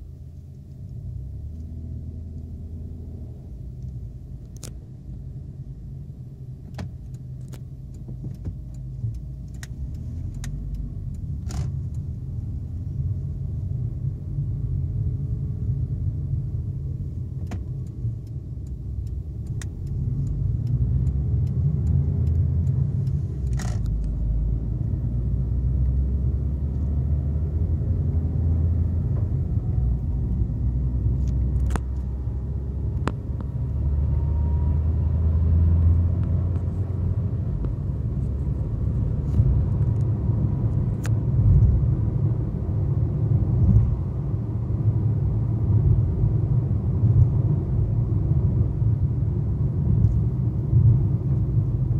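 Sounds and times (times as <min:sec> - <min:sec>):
car engine and road rumble: 0:00.0 - 0:51.9
faint sharp clicks: 0:06.7 - 0:12.1, 0:17.4 - 0:24.2.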